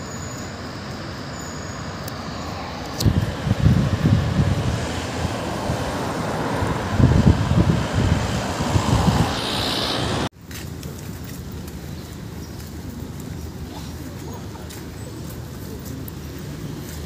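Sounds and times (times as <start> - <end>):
road traffic rushing: 0.0 - 17.0
tyres passing: 0.0 - 17.0
wind buffeting microphone: 2.9 - 10.3.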